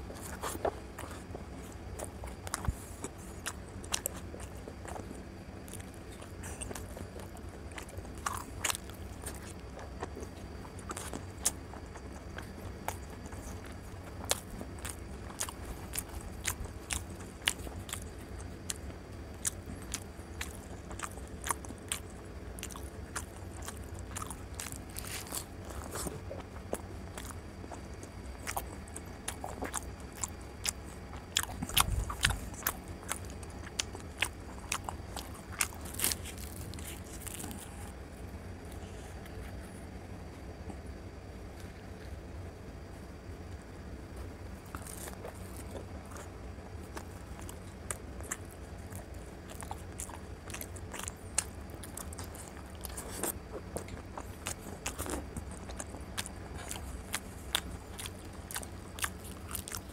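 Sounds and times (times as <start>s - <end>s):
chewing and mouth clicks: 0.0s - 38.0s, 44.2s - 59.9s
low steady hum: 0.0s - 59.9s.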